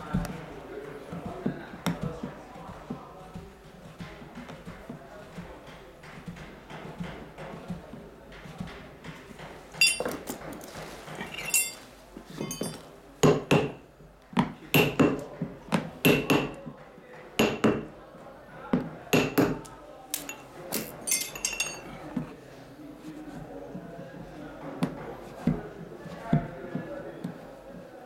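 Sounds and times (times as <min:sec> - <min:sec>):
metal tool tapping with ring: 0:09.8 - 0:10.2, 0:11.3 - 0:11.8, 0:12.4 - 0:12.9, 0:20.2 - 0:21.9.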